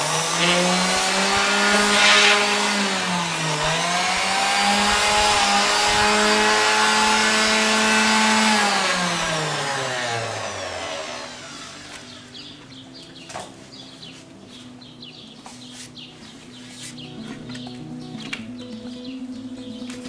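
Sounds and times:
orbital sander running: 0.0 - 13.0.

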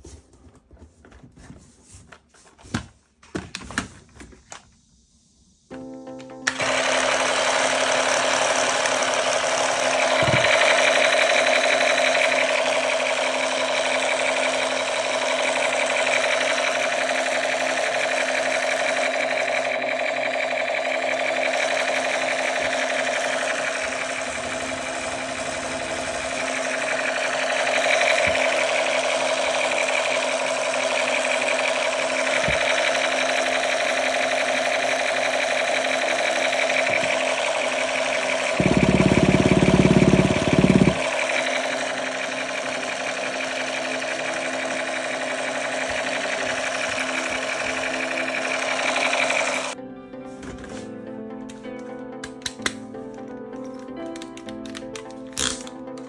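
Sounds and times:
small motor buzzing with rattle: 6.6 - 49.8.

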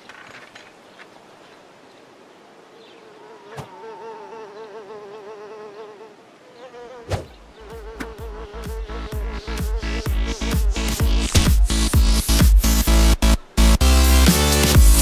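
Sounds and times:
insect-like buzzing: 3.0 - 12.8
electronic dance music: 8.9 - 15.0.

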